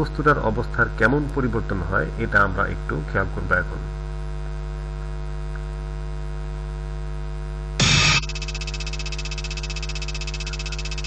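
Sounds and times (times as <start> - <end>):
electrical mains hum: 0.0 - 11.0
pulsing buzz: 6.0 - 11.0
struck drum sound effect: 7.8 - 8.3.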